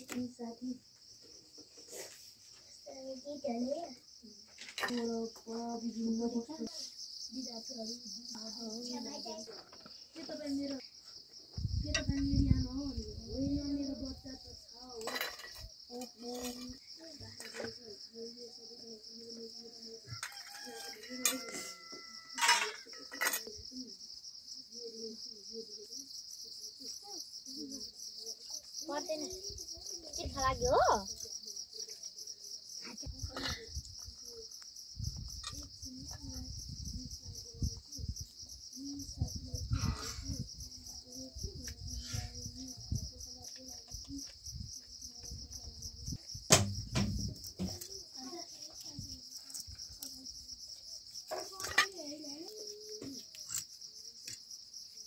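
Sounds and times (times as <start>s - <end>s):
insects chirring: 0.0s - 55.0s
faint voices talking: 1.8s - 54.6s
sharp knocks: 46.5s - 47.8s.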